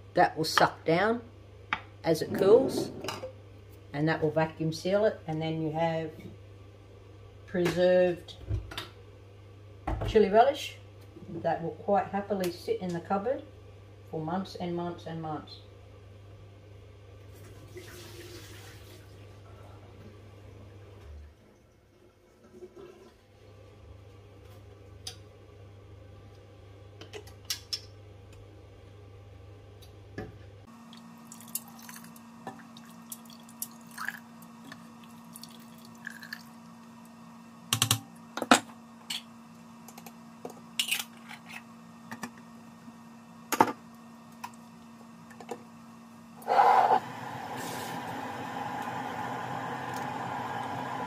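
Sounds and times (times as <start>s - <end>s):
water dripping: 30.9s - 34.2s.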